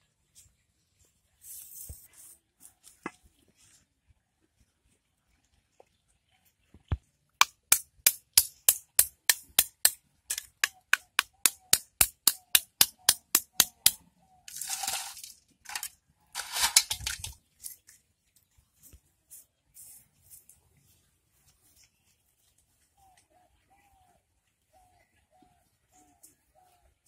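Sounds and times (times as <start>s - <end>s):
scraping rustling noises: 0.2s - 5.1s, 14.5s - 23.2s
sickle cutting strokes: 7.7s - 17.8s.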